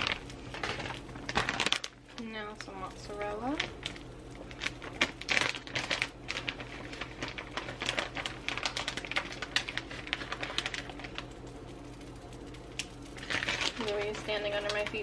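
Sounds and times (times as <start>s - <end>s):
plastic bag crinkling: 0.0s - 15.0s
small clicks and rustles: 3.6s - 15.0s.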